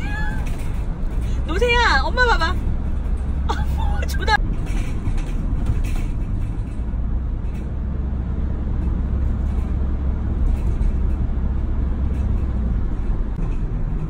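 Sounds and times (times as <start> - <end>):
van driving on highway: 0.0 - 14.0.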